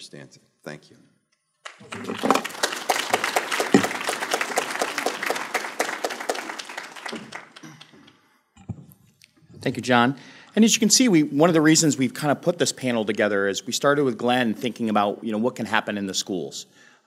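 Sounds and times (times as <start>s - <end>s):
audience applauding: 1.6s - 8.2s.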